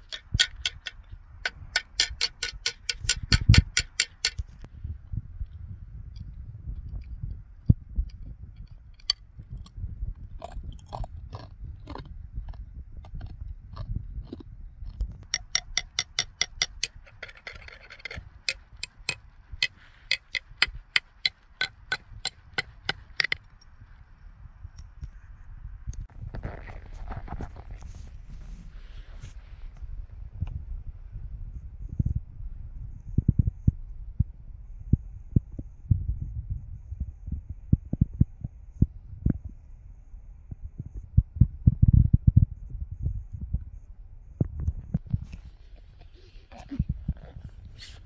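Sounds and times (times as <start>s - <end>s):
wind buffeting microphone: 0.0s - 48.0s
ice tapping glassy ticks: 15.3s - 19.2s
ice scraping: 26.2s - 29.3s.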